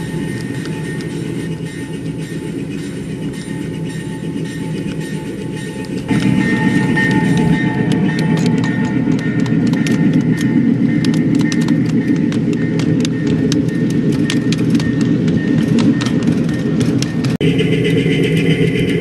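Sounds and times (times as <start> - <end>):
wheels clicking over rail joints: 0.0 - 17.4
model train rumble: 0.0 - 19.0.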